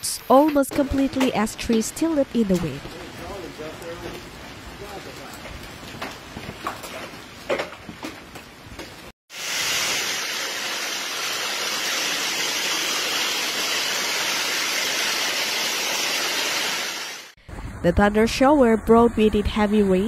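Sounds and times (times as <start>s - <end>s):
hail and rain falling: 1.2s - 17.3s
torrential rain and hail on pavement: 1.6s - 17.3s.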